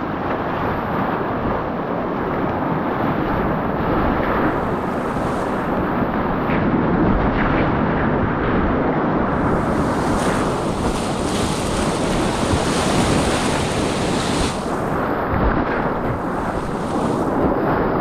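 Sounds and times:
rushing whitewater: 9.3s - 18.0s.

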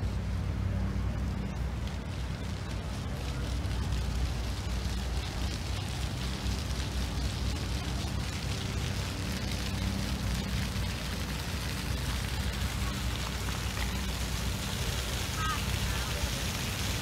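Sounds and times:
faint outdoor hiss: 0.0s - 17.0s.

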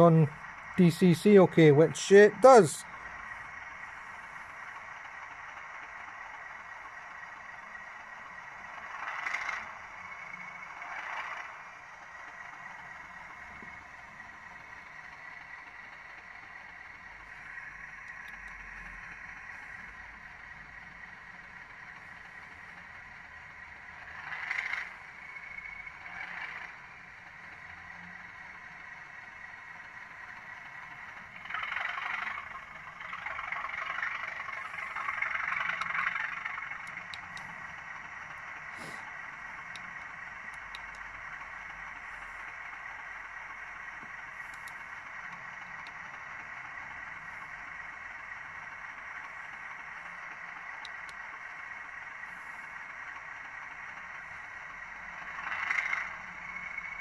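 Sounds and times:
model train diesel engine sound: 0.0s - 57.0s.

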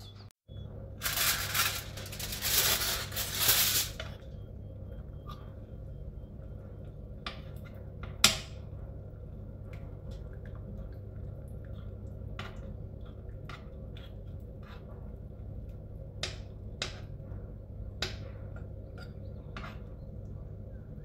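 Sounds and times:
steady low hum: 0.0s - 21.0s
utensil scraping frying pan: 1.0s - 4.1s
broth simmering: 8.8s - 17.9s.

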